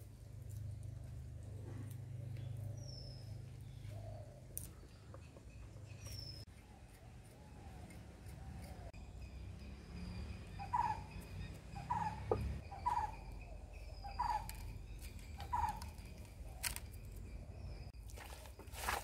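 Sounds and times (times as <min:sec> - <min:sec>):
bird calling: 0:10.5 - 0:17.9.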